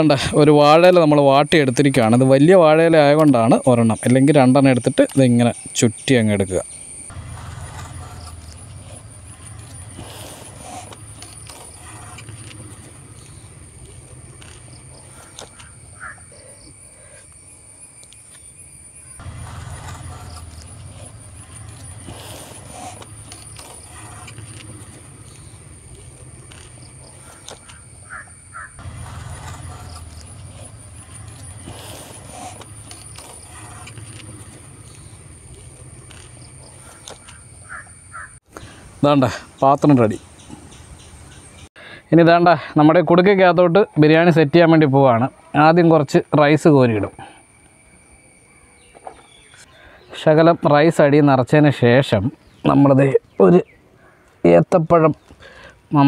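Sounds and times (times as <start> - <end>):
high insect drone: 0.0 - 41.7, 42.9 - 51.3
low motor rumble: 6.4 - 16.8, 18.6 - 38.2
crow cawing: 15.2 - 16.6, 27.3 - 28.8, 36.8 - 38.4.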